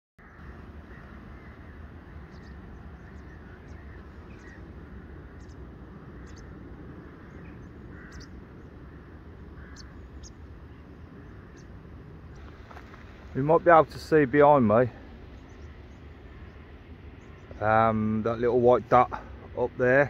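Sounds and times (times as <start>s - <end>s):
bird chirps: 0.2s - 4.7s, 5.3s - 5.6s, 6.2s - 6.6s, 7.2s - 8.7s, 15.3s - 17.6s
steady low rumble: 0.2s - 20.0s.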